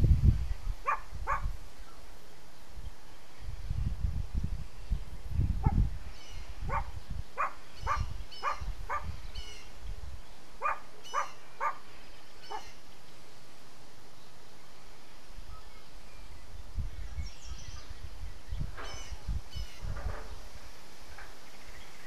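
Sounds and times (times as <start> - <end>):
dog barking: 0.8 - 1.5, 6.7 - 9.1, 10.6 - 11.8.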